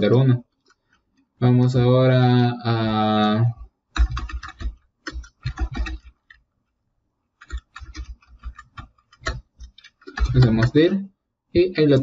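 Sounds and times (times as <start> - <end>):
typing on keyboard: 3.5 - 6.4, 7.4 - 11.0.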